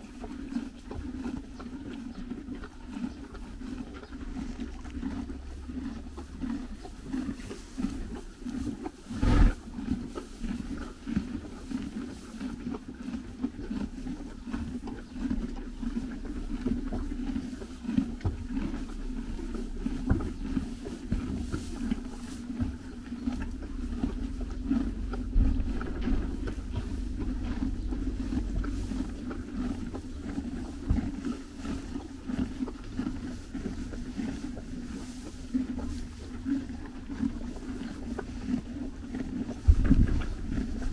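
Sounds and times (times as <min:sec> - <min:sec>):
horses chewing hay: 0:00.0 - 0:40.9
low rumble: 0:13.4 - 0:40.9.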